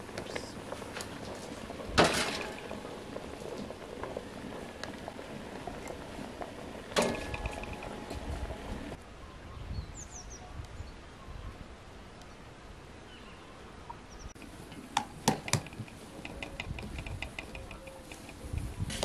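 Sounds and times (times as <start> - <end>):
faint bird chirps: 9.1 - 11.7.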